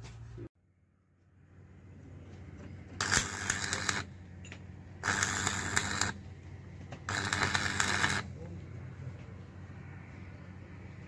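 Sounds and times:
welding arc crackling: 3.0s - 4.2s, 5.0s - 6.2s, 7.1s - 8.4s.

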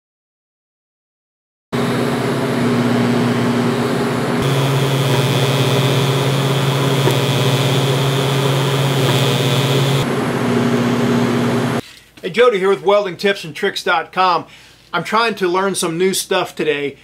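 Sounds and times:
welding arc buzzing: 4.4s - 11.8s.

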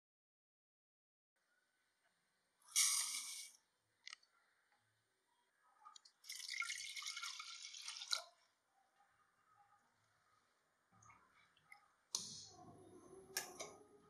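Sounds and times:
water pouring: 6.0s - 8.4s.

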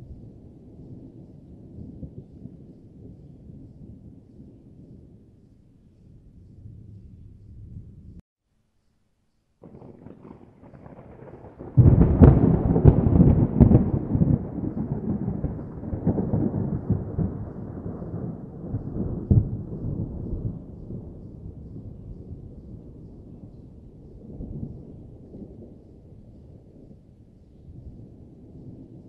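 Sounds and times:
thunder rumbling and cracking: 9.6s - 27.1s.

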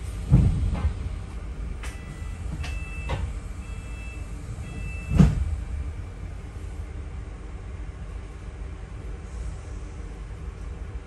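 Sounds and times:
bus engine and road rumble: 0.0s - 11.0s.

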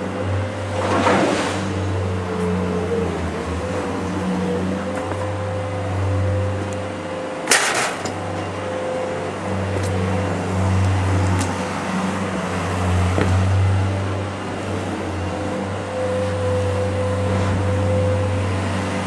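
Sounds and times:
low mechanical hum: 0.0s - 19.0s
loud clatter: 7.5s - 8.2s.

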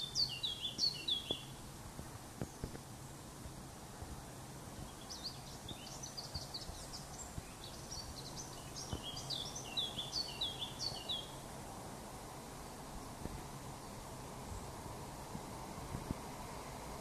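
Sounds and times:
songbird singing high notes: 0.0s - 1.6s, 4.9s - 11.4s
faint background noise: 0.0s - 17.0s.

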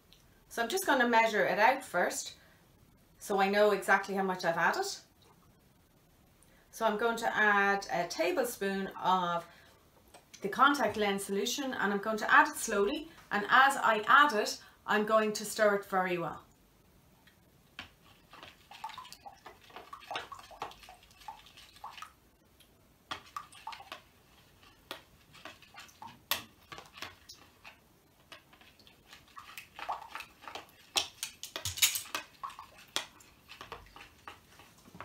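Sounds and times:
spoon scraping plastic bowl: 17.8s - 22.0s, 23.1s - 35.0s.

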